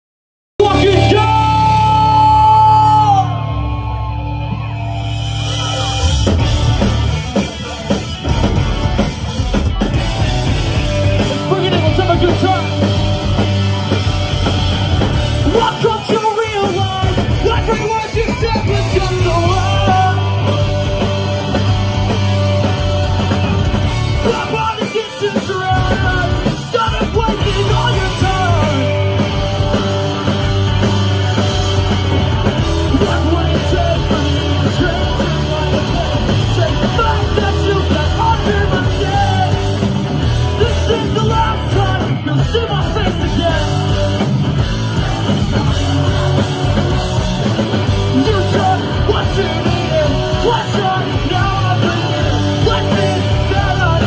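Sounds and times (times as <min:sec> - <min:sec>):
person singing and shouting: 0:00.6 - 0:06.4, 0:09.6 - 0:12.9, 0:15.0 - 0:21.0, 0:24.1 - 0:30.2, 0:31.8 - 0:46.5, 0:47.8 - 0:54.0
punk rock band playing: 0:00.6 - 0:54.0.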